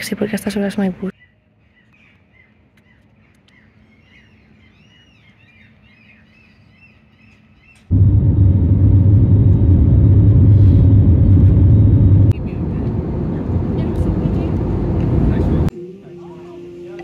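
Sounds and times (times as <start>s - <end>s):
birds chirping and whistling: 1.2s - 7.9s
airliner cabin rumble: 7.9s - 15.7s.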